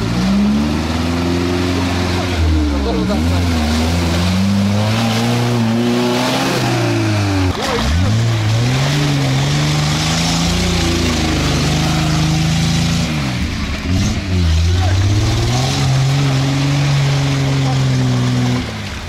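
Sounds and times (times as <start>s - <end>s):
off-road vehicle engine revving: 0.0s - 19.0s.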